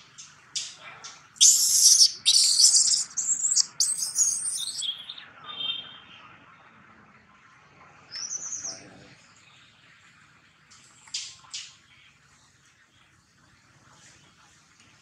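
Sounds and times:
baby monkey screaming: 0:01.4 - 0:04.9.

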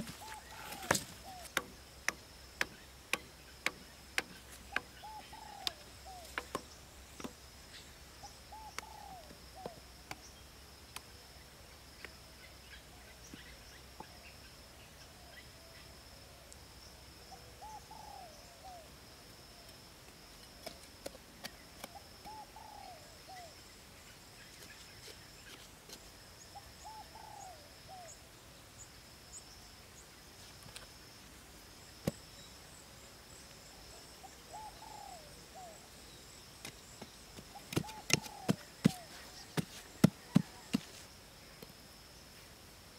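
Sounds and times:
machete chopping wood: 0:00.0 - 0:04.9
bird warbling call: 0:37.5 - 0:39.6.

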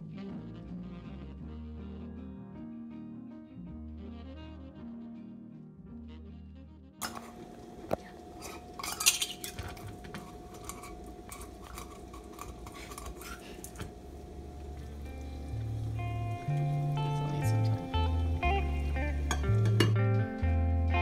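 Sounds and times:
faint steady hum: 0:07.0 - 0:21.0.

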